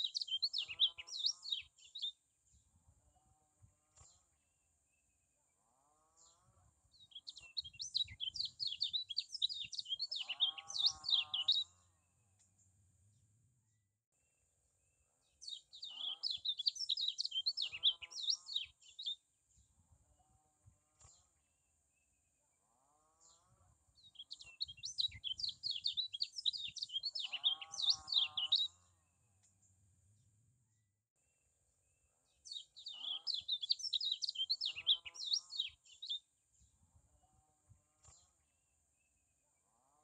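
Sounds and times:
bird twittering song: 0.0s - 2.8s, 6.2s - 12.8s, 15.2s - 19.9s, 23.2s - 30.4s, 32.2s - 36.9s.

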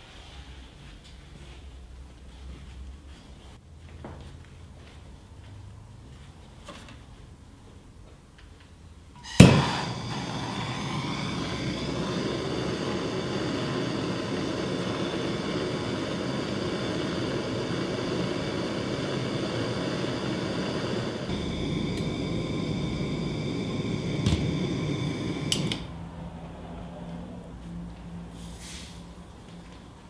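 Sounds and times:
gas torch lighting pop: 9.2s - 25.9s
gas torch hissing: 9.2s - 26.0s.

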